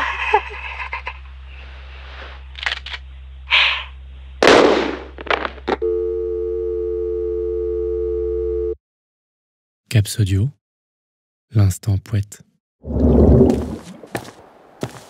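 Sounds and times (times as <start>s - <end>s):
woman laughing: 0.0s - 1.3s.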